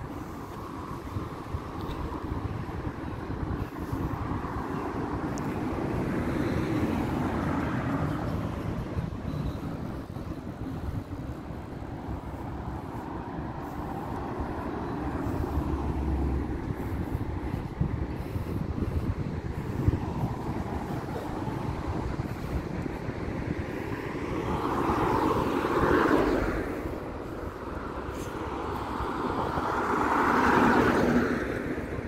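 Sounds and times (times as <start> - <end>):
cars passing: 0.0 - 32.0.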